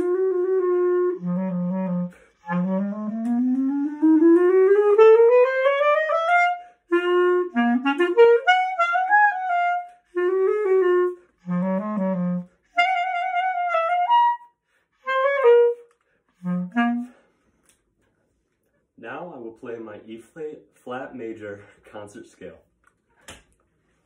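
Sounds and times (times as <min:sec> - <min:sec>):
solo clarinet playing: 0:00.0 - 0:17.4.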